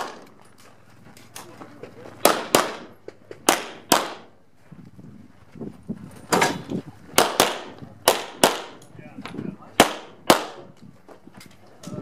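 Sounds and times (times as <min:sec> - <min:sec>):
pistol shots cracking: 0:00.0 - 0:00.3, 0:02.2 - 0:04.4, 0:07.2 - 0:08.9, 0:09.8 - 0:10.7.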